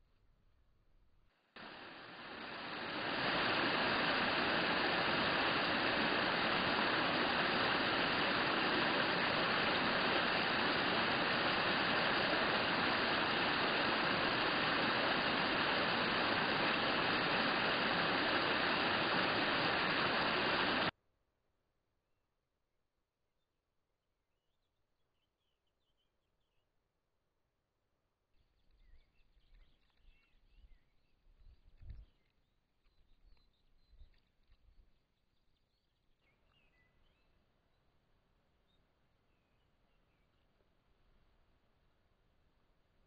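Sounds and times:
stream running over stones: 1.6 - 20.9.

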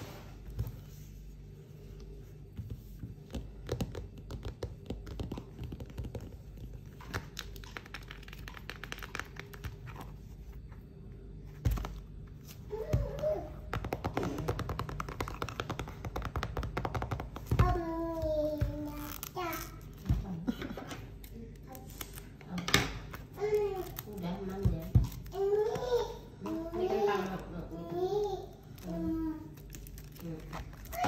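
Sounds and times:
plastic film crinkling: 5.8 - 10.3, 28.7 - 31.0.

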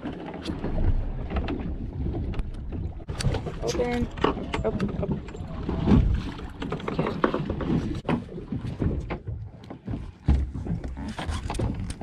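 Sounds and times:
water slapping boat hull: 0.0 - 12.0.

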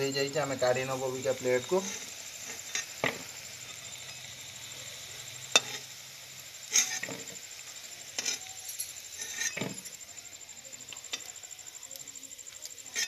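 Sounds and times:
fritters sizzling in hot oil: 0.0 - 13.0
metal spatula clinking on pan: 8.2 - 9.9.

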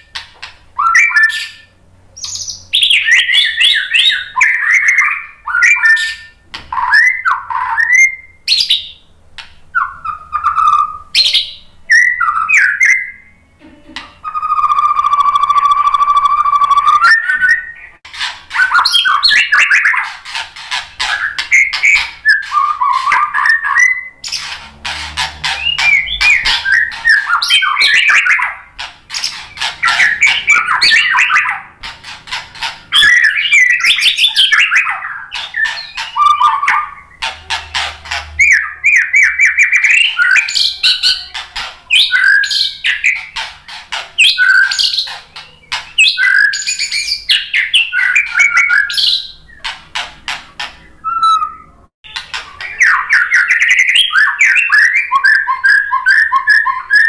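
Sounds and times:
bird singing whistled phrases: 0.8 - 9.0, 9.7 - 13.3, 14.2 - 18.0, 18.6 - 20.0, 21.1 - 24.4, 25.6 - 28.6, 29.2 - 31.7, 32.9 - 37.2, 38.4 - 41.3, 41.9 - 43.3, 44.2 - 49.5, 51.0 - 57.0
bird harsh clicking chatter: 18.0 - 51.0, 52.1 - 54.9.

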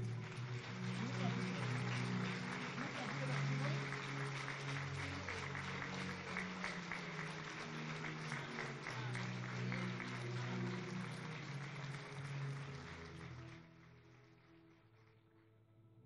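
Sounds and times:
congregation applauding: 0.0 - 15.6
background music with low notes: 0.0 - 16.0.

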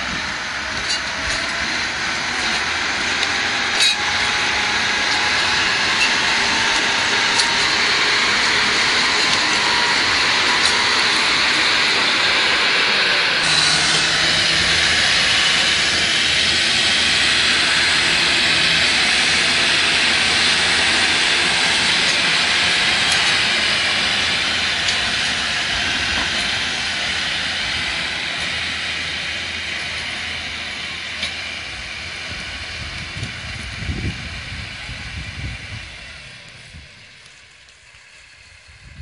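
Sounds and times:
blade dragging through soil: 0.0 - 30.6
tractor diesel engine running: 0.0 - 39.0.

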